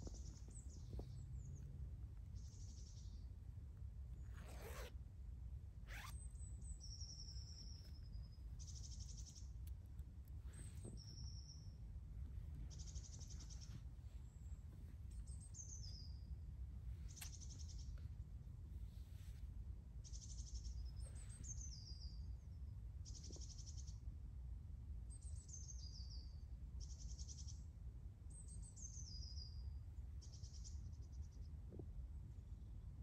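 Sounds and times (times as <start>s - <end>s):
low outdoor rumble: 0.0s - 25.4s.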